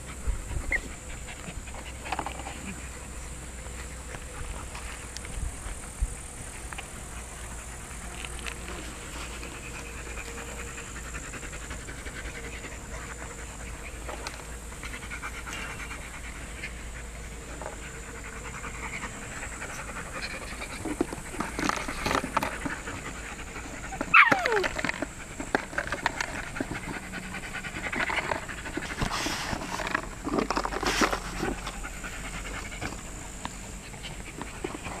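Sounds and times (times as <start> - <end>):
puppies panting: 0.0 - 35.0
puppy cry falling in pitch: 24.1 - 24.7.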